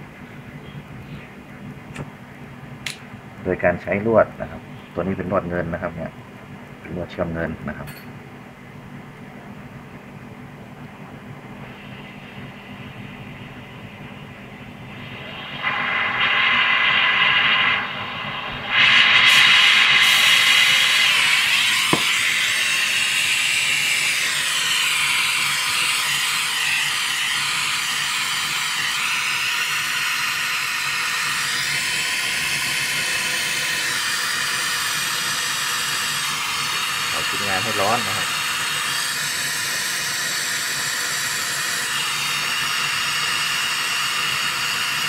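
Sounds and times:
brazing torch flame hissing: 14.9 - 45.0.

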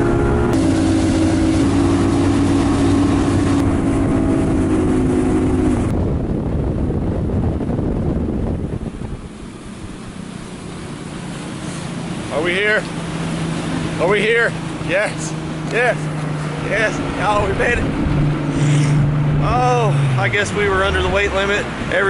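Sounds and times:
wind buffeting microphone: 0.0 - 12.3, 14.6 - 22.0
outboard engine running fast: 0.0 - 22.0
water spray rushing: 0.5 - 5.8, 9.4 - 22.0.

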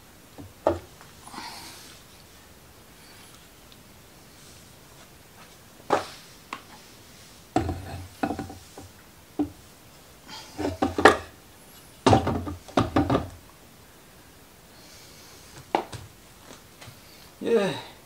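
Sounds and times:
metal clunks and scraping: 7.6 - 9.6, 10.5 - 11.3, 12.0 - 13.3.

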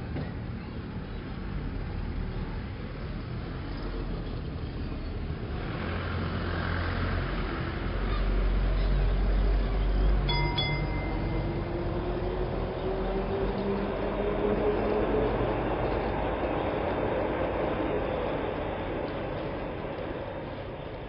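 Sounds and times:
vehicle rumble: 0.0 - 21.0
short ding: 10.3 - 11.5.

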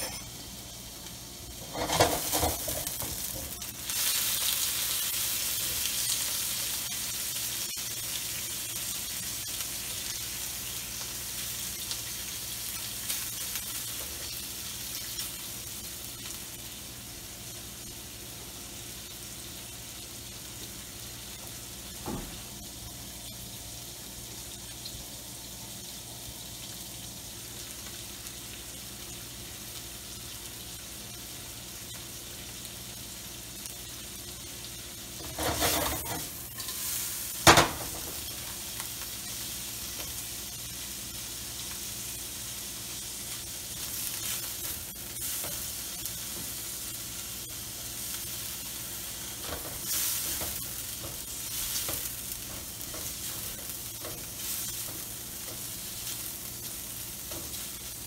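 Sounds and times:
shrimp sizzling in oil: 0.0 - 58.0
spatula scraping pan: 1.6 - 3.4, 35.2 - 38.6.

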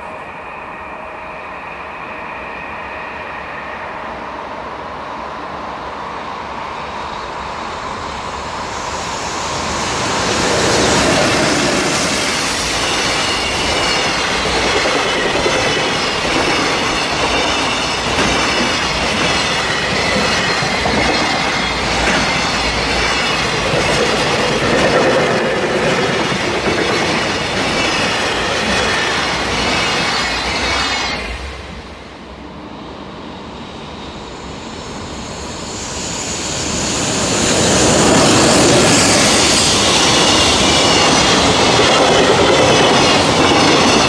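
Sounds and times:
wheels squealing on rails: 0.0 - 32.1, 33.2 - 44.0
freight train wagons rumbling: 7.2 - 32.0, 36.7 - 44.0.

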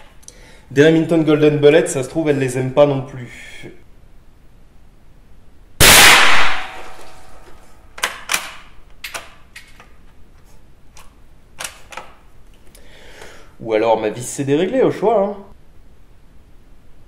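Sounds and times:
rifle shot: 5.8 - 7.4.

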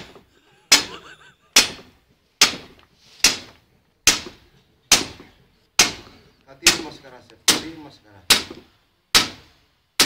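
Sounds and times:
sledgehammer striking hard ground: 1.6 - 9.5.

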